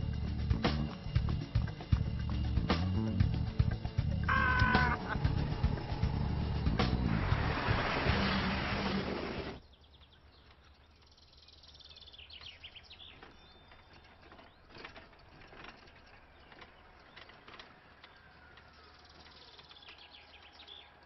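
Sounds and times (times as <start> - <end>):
truck engine and road noise: 0.0 - 9.6
birds chirping: 0.2 - 21.0.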